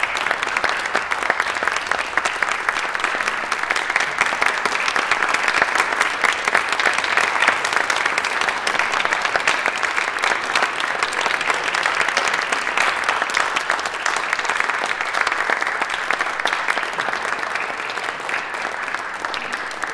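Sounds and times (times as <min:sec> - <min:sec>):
audience applauding: 0:00.0 - 0:19.9.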